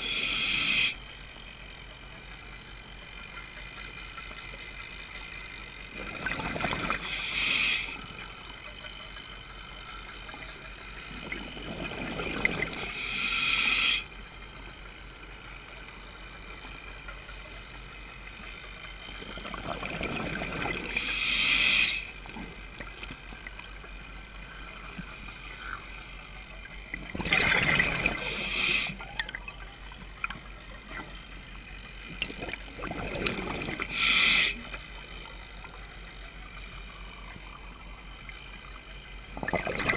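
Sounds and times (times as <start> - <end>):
diver breathing through regulator: 0.0 - 1.0, 6.6 - 8.1, 12.3 - 14.1, 20.6 - 22.2, 24.1 - 26.2, 27.8 - 29.2, 33.1 - 34.9
underwater background hiss: 0.0 - 39.9.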